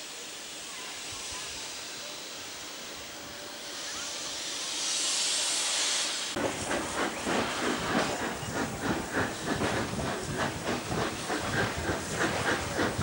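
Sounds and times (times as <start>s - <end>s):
steam locomotive hissing: 0.0s - 13.0s
locomotive exhaust beats: 6.4s - 13.0s.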